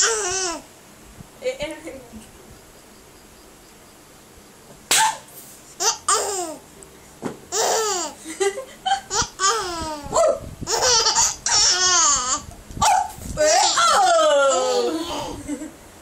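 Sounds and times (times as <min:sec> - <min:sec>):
baby laughing: 0:00.0 - 0:00.6, 0:05.8 - 0:06.6, 0:07.5 - 0:12.5.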